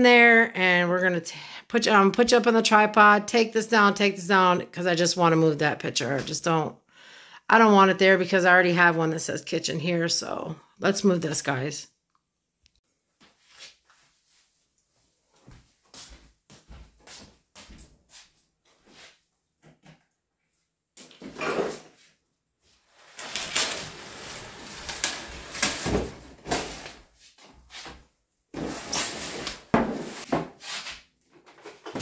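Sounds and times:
footsteps: 15.0s - 19.1s
plastic bag rustling: 22.8s - 27.1s.

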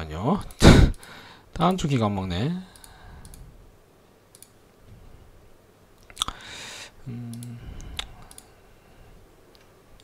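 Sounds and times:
computer mouse clicks: 2.7s - 3.4s, 4.3s - 4.6s, 7.3s - 8.5s.

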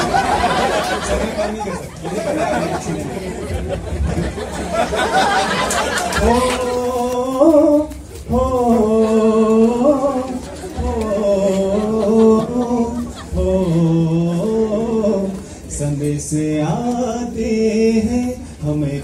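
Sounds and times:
man singing unaccompanied: 6.2s - 19.0s.

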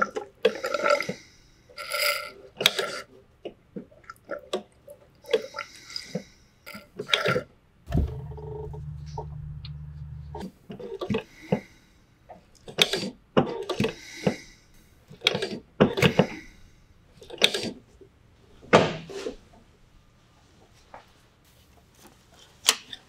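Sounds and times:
low steady hum: 7.9s - 10.7s.

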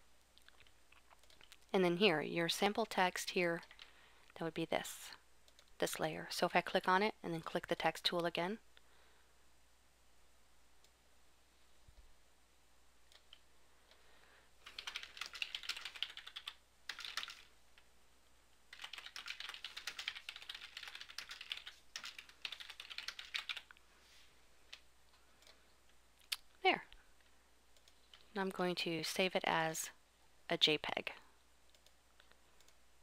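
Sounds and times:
typing on keyboard: 14.6s - 17.5s, 18.7s - 23.8s.

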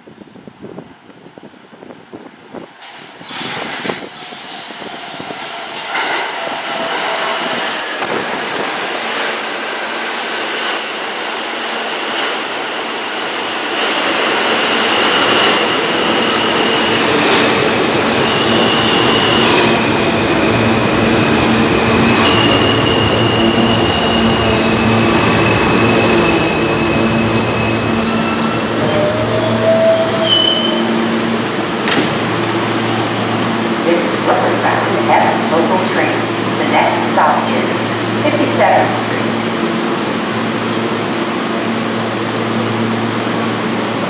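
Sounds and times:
rumble of train wheels: 0.0s - 44.0s
wheel and brake squeals: 26.9s - 30.9s.

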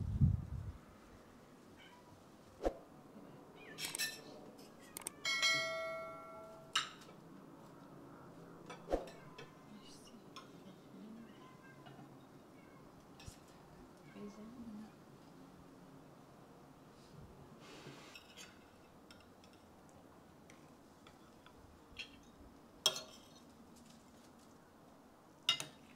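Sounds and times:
ringing tableware clink: 5.0s - 7.1s.

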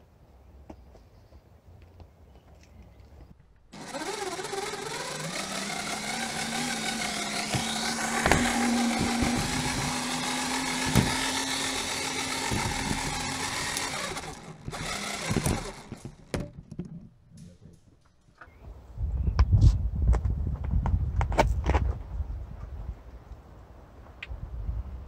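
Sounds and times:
electric motors whining: 3.8s - 16.6s.

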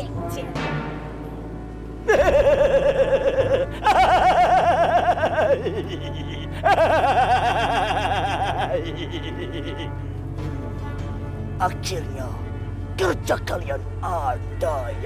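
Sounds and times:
quiet background music: 0.0s - 15.0s
high-pitched laughter: 2.1s - 10.0s.

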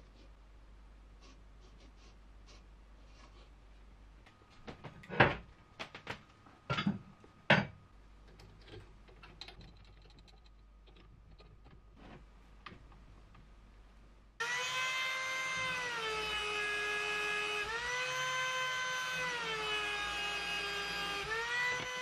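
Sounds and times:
steel parts knocking and clanking: 6.7s - 11.8s.

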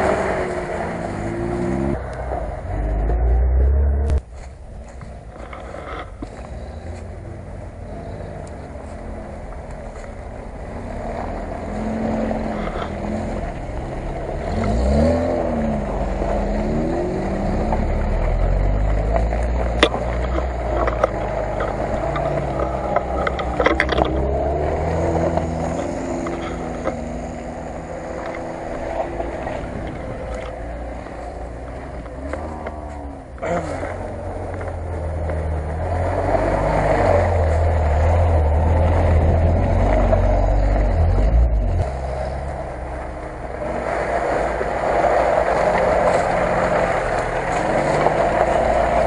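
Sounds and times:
car engine revving: 0.0s - 49.0s.

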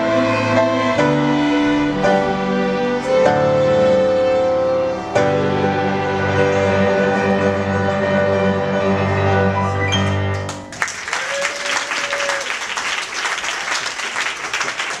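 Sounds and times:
string ensemble chord: 0.0s - 10.5s
applause: 10.4s - 15.0s.

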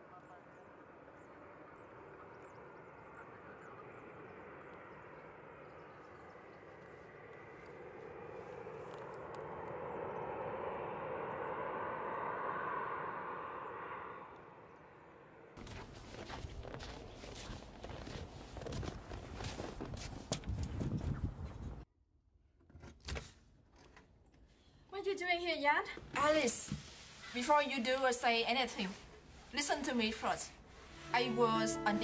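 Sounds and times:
jet airliner engine noise: 0.0s - 15.4s.

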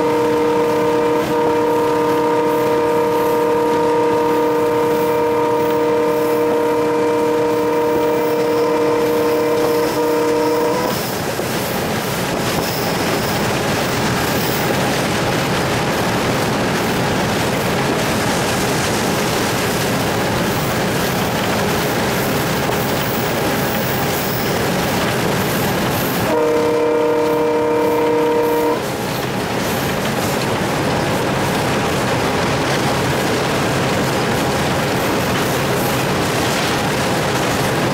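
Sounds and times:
locomotive air horn blasts: 0.0s - 11.0s, 26.2s - 28.9s
locomotive running on rails: 0.0s - 37.9s.

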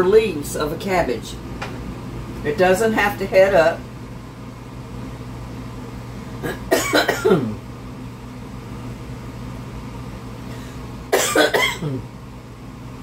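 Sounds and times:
steady low hum: 0.0s - 13.0s
woman coughing: 6.4s - 7.6s, 11.1s - 12.1s.

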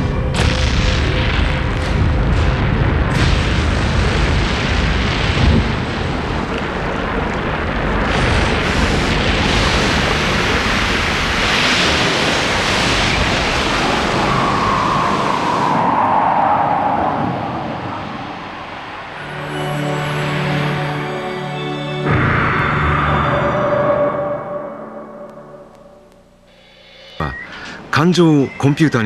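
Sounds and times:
rumbling eruption: 0.0s - 19.5s
rushing surf-like noise: 1.9s - 21.1s
held tone: 22.1s - 29.0s.

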